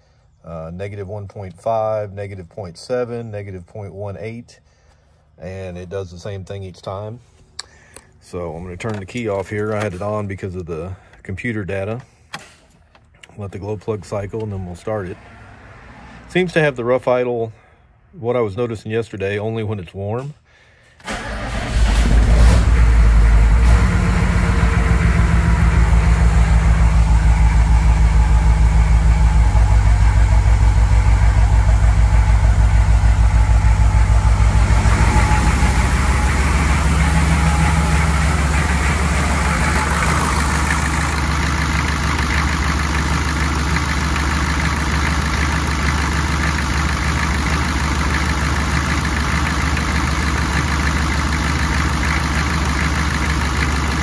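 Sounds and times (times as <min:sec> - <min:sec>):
diesel engine idling: 0:21.1 - 0:54.0.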